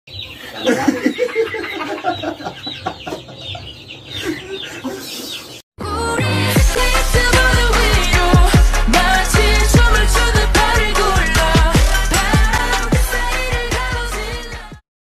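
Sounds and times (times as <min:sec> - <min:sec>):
group of people laughing: 0:00.5 - 0:05.3
pop music with steady beat: 0:05.8 - 0:14.8.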